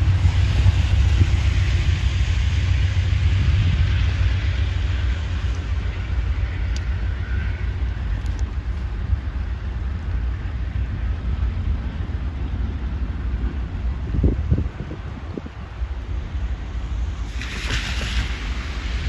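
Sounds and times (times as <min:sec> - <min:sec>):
wind on microphone: 0:00.0 - 0:08.2, 0:13.0 - 0:16.1
distant train rumbling: 0:00.0 - 0:19.0
train hiss: 0:00.0 - 0:19.0.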